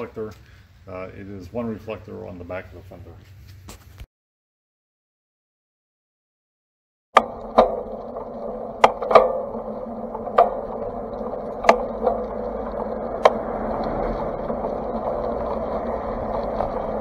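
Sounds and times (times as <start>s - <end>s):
road and wind noise: 7.2s - 17.0s.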